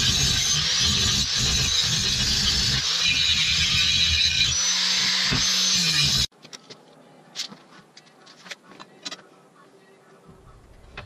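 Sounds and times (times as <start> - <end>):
angle grinder grinding steel: 0.0 - 6.3.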